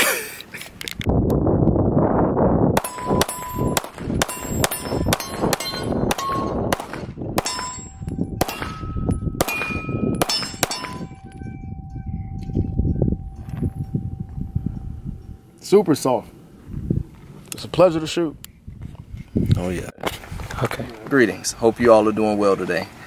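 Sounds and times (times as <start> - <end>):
steel targets clanging: 2.8 - 6.7, 7.4 - 11.6
pistol shots: 2.8 - 11.1.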